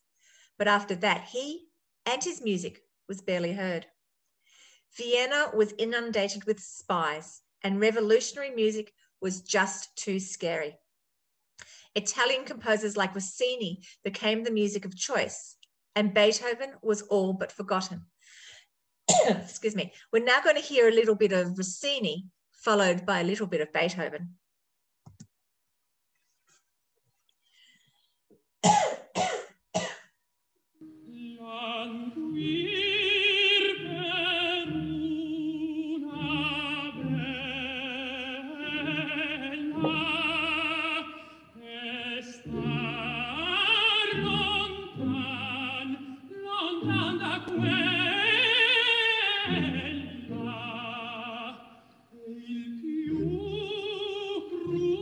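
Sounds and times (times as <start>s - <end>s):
man singing opera: 31.3s - 51.8s.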